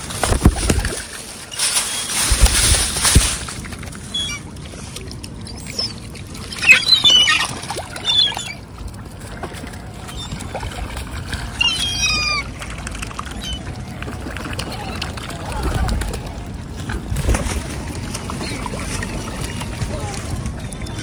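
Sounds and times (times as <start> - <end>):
gulls squawking: 5.5 - 8.7, 9.8 - 16.5.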